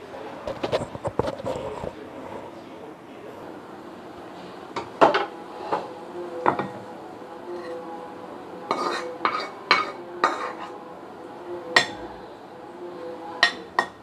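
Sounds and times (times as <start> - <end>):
spoon clinking on cookware: 8.7 - 10.7.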